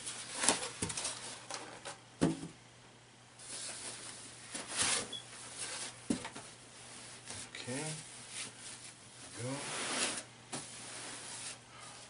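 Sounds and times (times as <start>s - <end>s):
foam scraping against foam: 8.4s - 11.6s.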